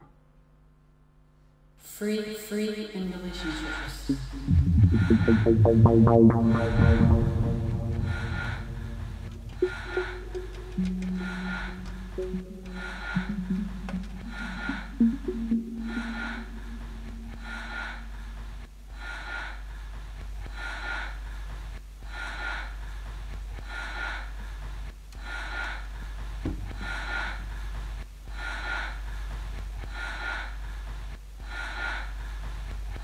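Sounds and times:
steady low hum: 0.0s - 33.0s
held low note: 3.4s - 18.2s
rhythmic swish: 3.5s - 18.6s.

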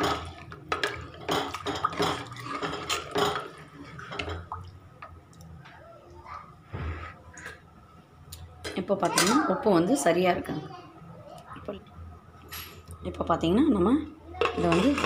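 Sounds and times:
liquid sloshing: 0.0s - 5.2s.

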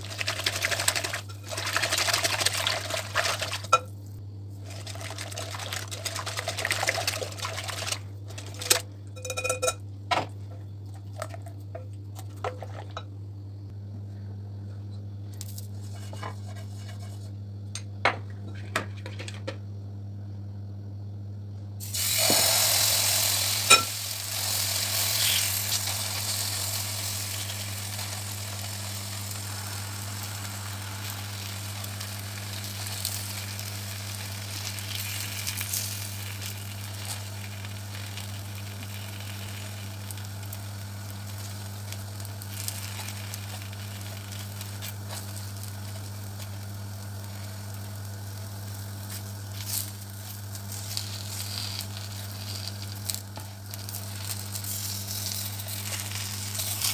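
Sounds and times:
batter sizzling in frying pan: 0.0s - 3.9s, 4.6s - 9.5s, 21.8s - 56.9s.

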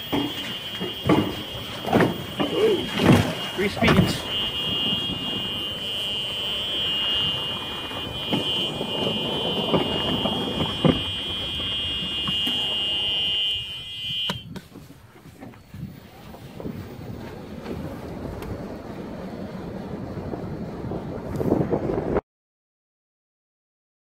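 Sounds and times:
knocks: 0.0s - 4.2s
rolling and rattling: 0.0s - 13.9s, 14.6s - 21.9s
wind noise: 0.0s - 22.2s.

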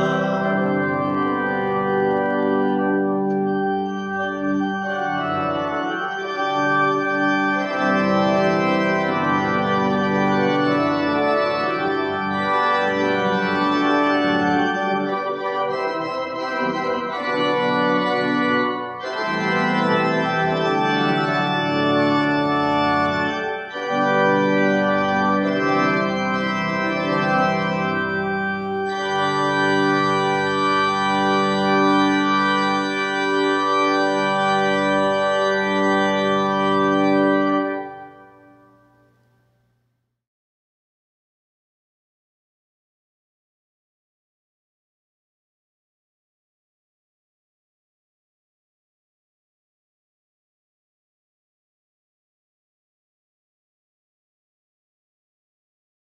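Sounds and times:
organ playing slow chords: 0.0s - 39.6s.

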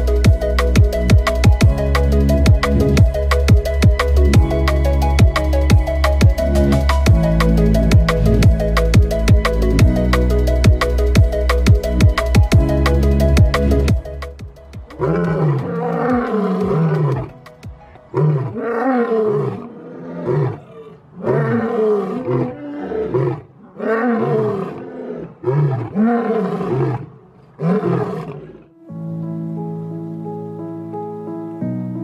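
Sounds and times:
music: 0.0s - 19.5s, 28.7s - 32.0s
lion roaring: 14.9s - 17.4s, 18.1s - 28.7s.

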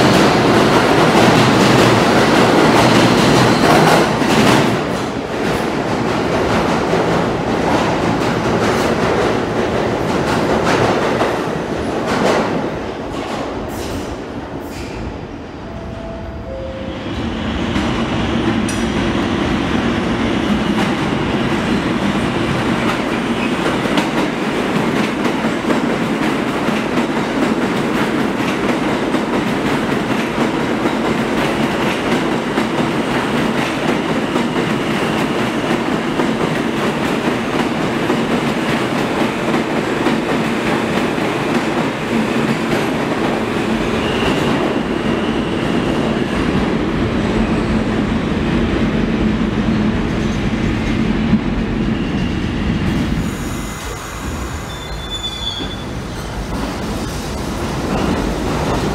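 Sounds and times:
train wheels rumbling on rails: 0.0s - 15.6s, 16.9s - 58.9s
faint wheel squeal: 53.3s - 56.0s.

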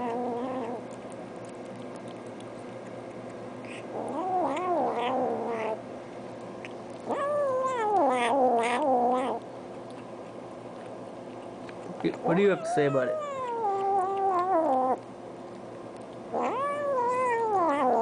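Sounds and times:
cat yowling: 0.0s - 0.8s, 3.7s - 5.8s, 7.0s - 9.4s, 12.2s - 15.0s, 16.3s - 18.0s.

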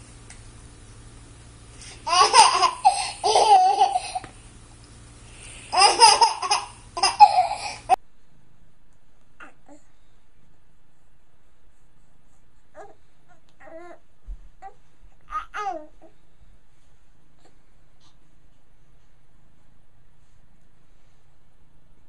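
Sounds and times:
baby laughing: 2.0s - 4.3s, 5.7s - 8.0s.

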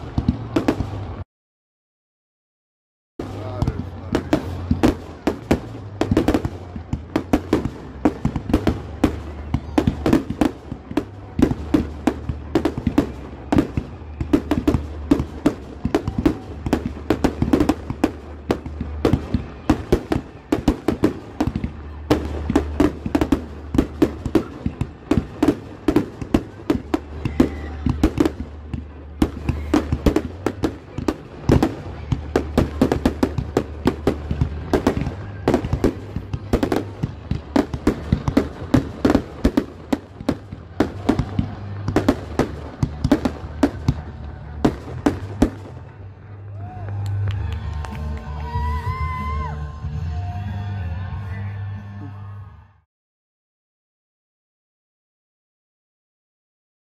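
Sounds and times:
firework bangs and crackles: 0.0s - 1.2s, 3.2s - 49.5s
fireworks shells launching and bursting: 3.2s - 46.5s.

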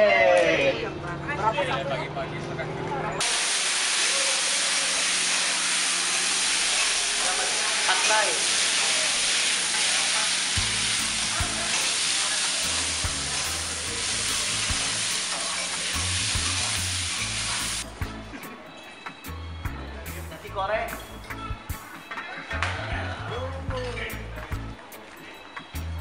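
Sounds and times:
food sizzling on a griddle: 3.2s - 17.9s.

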